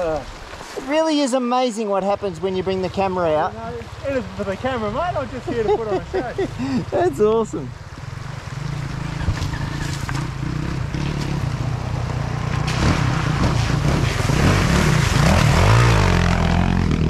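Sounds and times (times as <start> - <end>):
dirt bike engine revving: 8.0 - 17.0.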